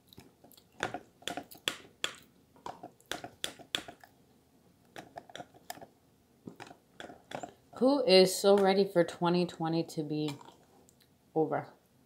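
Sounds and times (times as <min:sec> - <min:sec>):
soft squishing of sauce: 0:00.0 - 0:07.8, 0:10.2 - 0:11.2.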